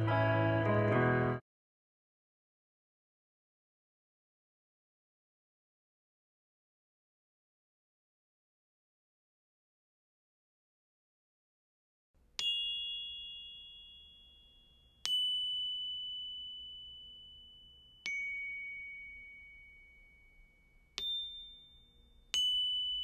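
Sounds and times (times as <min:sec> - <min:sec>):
bell-like chime notes: 0:12.4 - 0:23.0.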